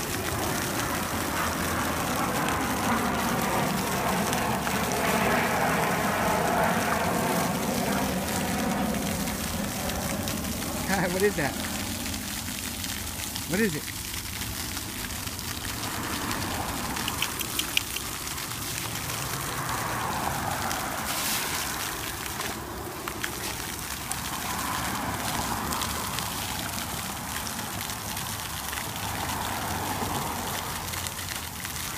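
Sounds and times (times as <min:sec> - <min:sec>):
water jet spraying and splattering: 0:00.0 - 0:31.9
small clicks: 0:17.0 - 0:18.1.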